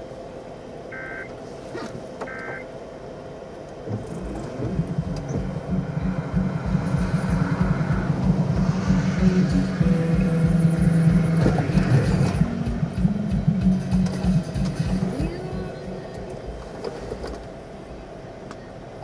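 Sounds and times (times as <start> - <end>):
low rumble: 3.8 - 16.7.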